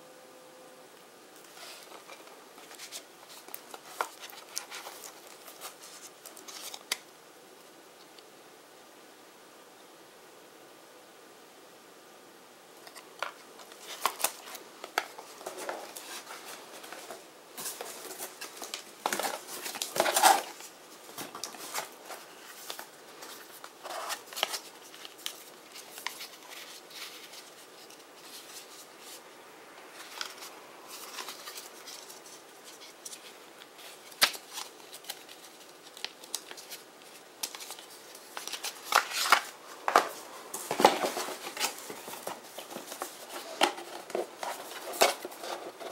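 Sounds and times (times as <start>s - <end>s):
cardboard boxes clicking and rustling: 12.9s - 24.7s, 37.4s - 45.9s
boxes lifted and set down: 39.2s - 45.9s.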